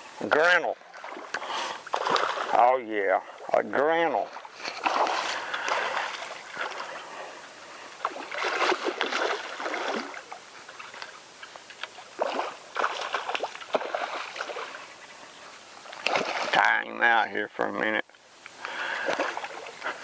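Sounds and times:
fish splashing at water surface: 0:00.9 - 0:02.6, 0:04.5 - 0:07.0, 0:08.0 - 0:11.0, 0:11.8 - 0:14.8, 0:15.9 - 0:16.6, 0:18.7 - 0:20.0.

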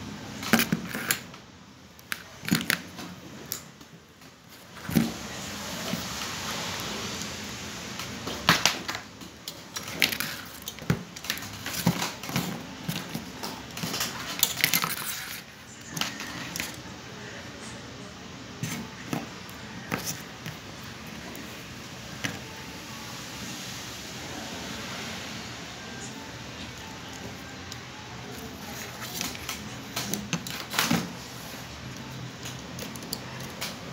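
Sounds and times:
small parts clicking and rattling: 0:08.6 - 0:16.8.

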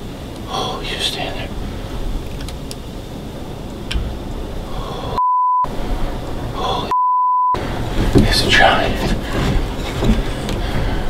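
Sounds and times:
censor bleeps: 0:05.2 - 0:05.7, 0:06.9 - 0:07.6.

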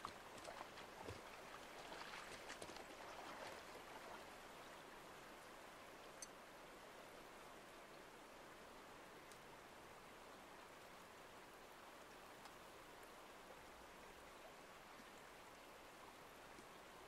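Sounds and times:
faint steady hiss: 0:00.0 - 0:17.0
soft ticks: 0:06.1 - 0:06.4, 0:09.2 - 0:09.5, 0:12.1 - 0:12.6, 0:16.5 - 0:16.7.

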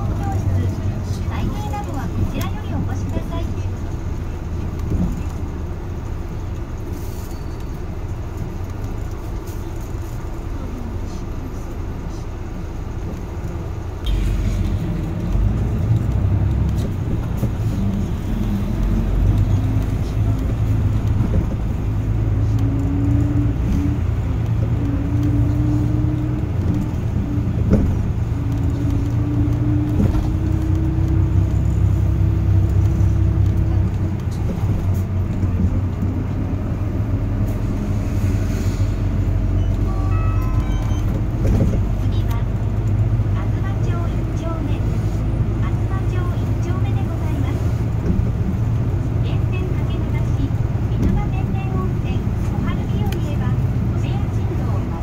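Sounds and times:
bus engine rumble: 0:00.0 - 0:55.0
electronic tones: 0:39.6 - 0:41.3.

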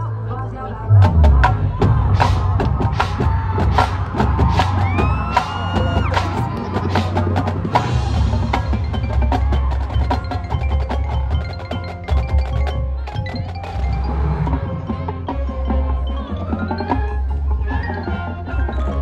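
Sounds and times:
low bass: 0:00.0 - 0:09.4
mallet percussion notes: 0:02.2 - 0:19.0.

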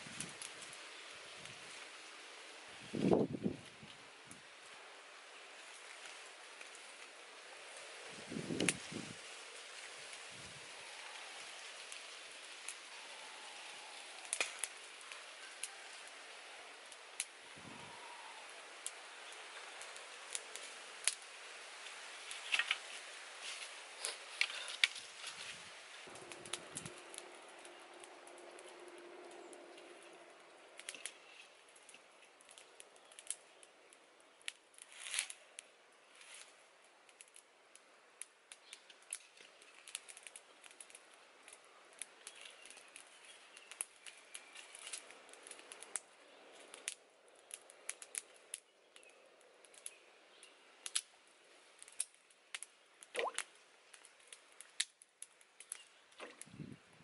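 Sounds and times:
faint hiss: 0:00.0 - 0:57.0
wood fire crackling: 0:00.0 - 0:57.0.

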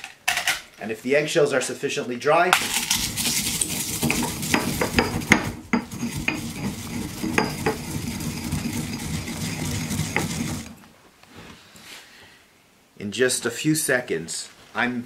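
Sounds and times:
eggshells crackling: 0:02.6 - 0:05.2
pestle grinding eggshells: 0:02.6 - 0:10.8.

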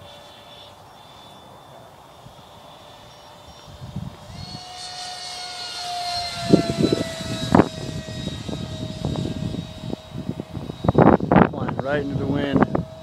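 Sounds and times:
model jet fan whining: 0:00.0 - 0:13.0.

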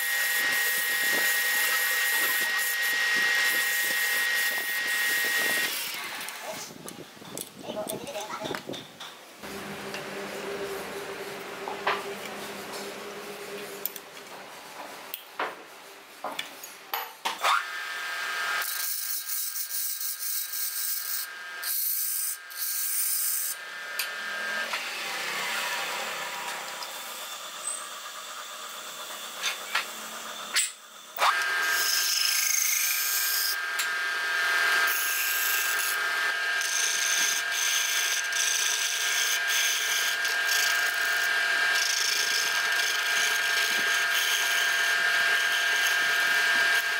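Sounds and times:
wood lathe whining: 0:00.0 - 0:06.4, 0:22.9 - 0:46.9
tool cutting wood: 0:00.0 - 0:06.8, 0:17.3 - 0:46.9.

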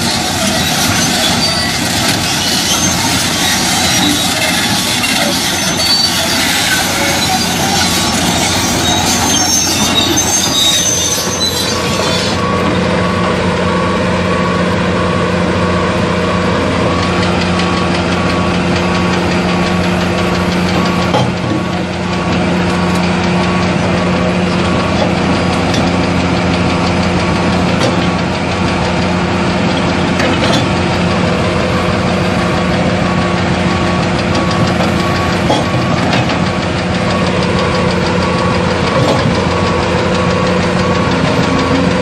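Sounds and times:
diesel engine running: 0:00.0 - 0:42.0
hydraulic breaker hammering rock: 0:19.0 - 0:23.2, 0:24.7 - 0:28.9, 0:34.0 - 0:42.0.

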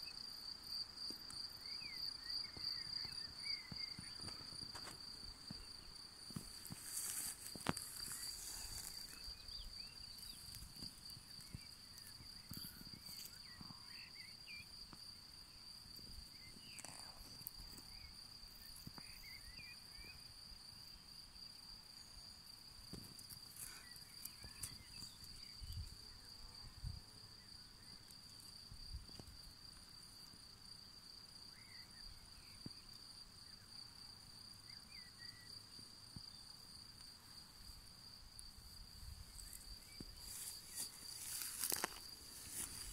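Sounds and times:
rustling: 0:06.4 - 0:09.4, 0:39.4 - 0:42.9.

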